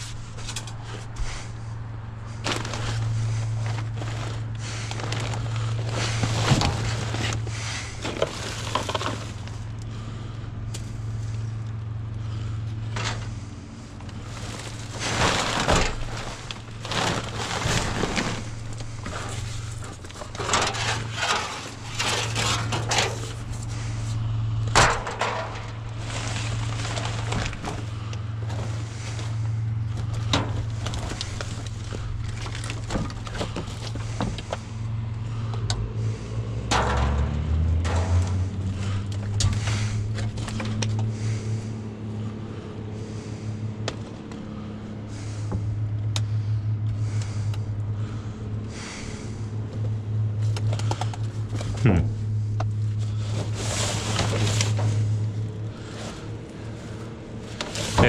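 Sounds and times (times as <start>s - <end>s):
low hum: 0.0s - 58.0s
cardboard and plastic bags crunching: 2.2s - 9.7s, 14.0s - 23.5s, 25.8s - 34.5s.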